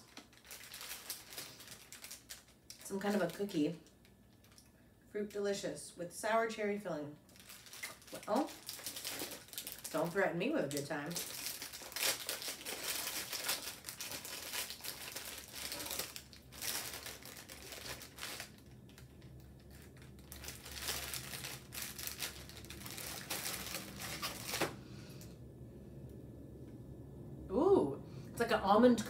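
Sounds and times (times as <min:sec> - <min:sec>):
foil wrapper crinkling and tearing: 0:00.0 - 0:04.6, 0:07.2 - 0:24.8.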